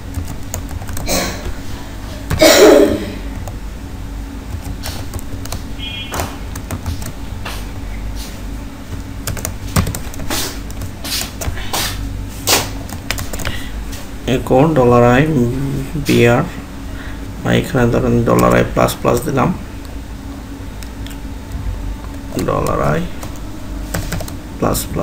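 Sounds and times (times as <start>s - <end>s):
keyboard typing clicks: 0.1s - 1.6s, 4.5s - 7.2s, 8.9s - 11.6s, 12.8s - 13.6s, 18.3s - 19.3s, 22.0s - 24.4s.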